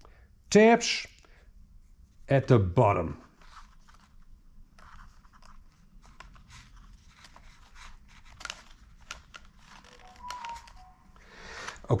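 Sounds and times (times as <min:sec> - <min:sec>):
small plastic clicks: 0:08.2 - 0:10.8.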